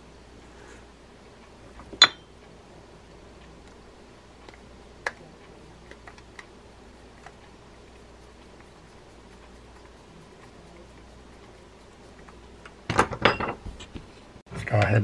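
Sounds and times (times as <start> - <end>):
sharp metallic clink: 2.0 - 2.3.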